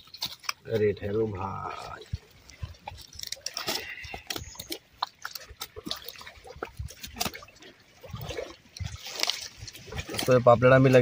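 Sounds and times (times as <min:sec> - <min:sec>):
fish flopping wet slaps: 0:02.8 - 0:10.4.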